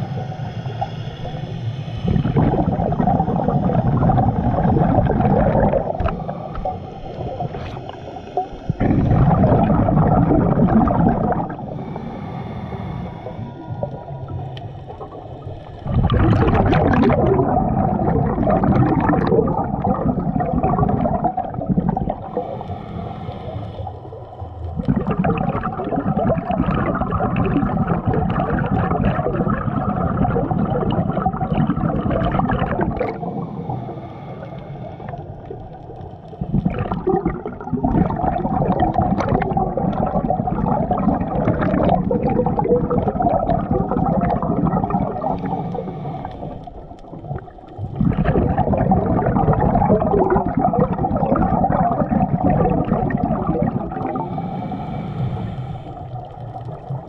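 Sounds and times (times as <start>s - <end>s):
scuba regulator bubbles gurgling underwater: 0.0s - 57.0s
faint regulator hiss: 11.5s - 15.8s, 22.1s - 24.8s, 33.0s - 36.4s, 45.1s - 47.8s, 54.2s - 57.0s.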